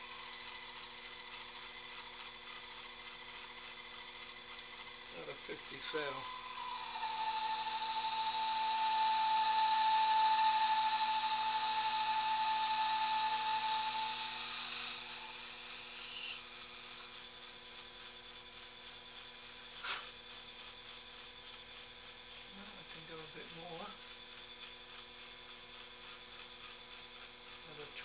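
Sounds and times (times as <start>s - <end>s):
lathe humming: 0.0s - 28.0s
metal lathe cutting with whine: 0.0s - 28.0s.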